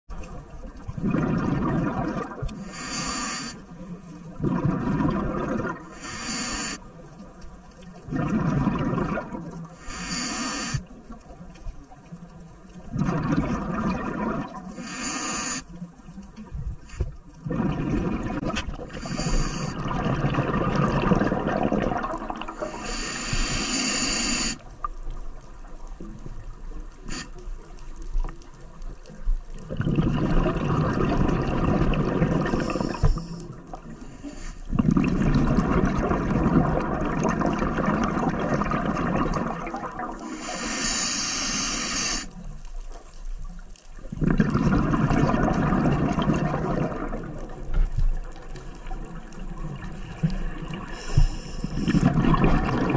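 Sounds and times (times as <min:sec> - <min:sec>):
exhaled bubbles rumbling: 0:00.1 - 0:02.7, 0:03.8 - 0:06.0, 0:06.9 - 0:09.8, 0:10.8 - 0:14.8, 0:16.4 - 0:22.8, 0:28.1 - 0:34.0, 0:34.6 - 0:40.4, 0:42.3 - 0:52.9
regulator inhale hiss: 0:02.5 - 0:03.8, 0:05.8 - 0:06.8, 0:09.7 - 0:10.9, 0:14.7 - 0:15.8, 0:16.8 - 0:17.3, 0:18.9 - 0:19.8, 0:22.5 - 0:24.6, 0:27.0 - 0:27.6, 0:32.4 - 0:34.7, 0:40.2 - 0:42.4, 0:50.9 - 0:52.2.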